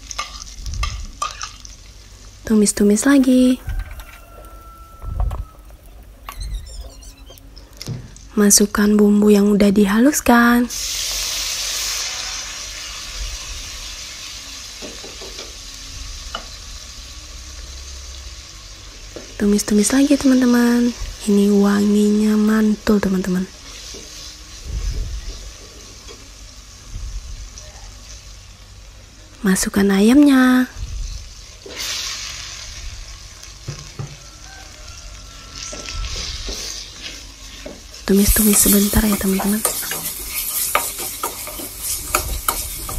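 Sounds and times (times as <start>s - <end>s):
paste sizzling in hot oil: 10.6s - 22.7s, 23.5s - 26.9s, 31.0s - 42.9s.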